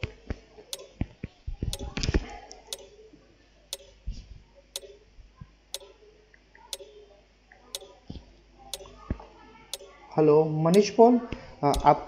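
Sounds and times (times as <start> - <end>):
clock ticking: 2.7 - 2.9, 4.8 - 5.0, 6.7 - 6.9, 8.7 - 8.9, 11.7 - 12.0.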